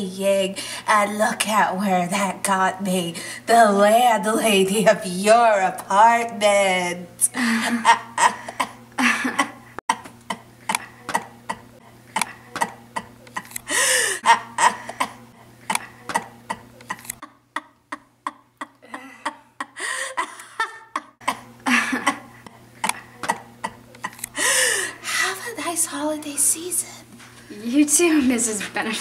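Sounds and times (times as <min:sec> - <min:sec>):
women laughing: 0:07.4 - 0:09.7, 0:13.3 - 0:15.0, 0:16.8 - 0:23.4
throat noises: 0:09.9 - 0:13.6.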